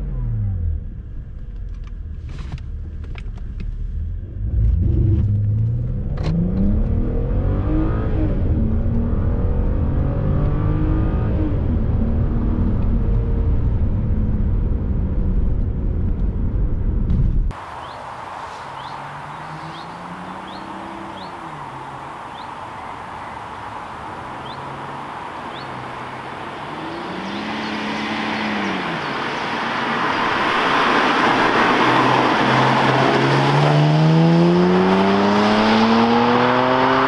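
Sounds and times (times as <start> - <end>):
car engine accelerating hard: 3.8 - 16.2, 18.7 - 37.0.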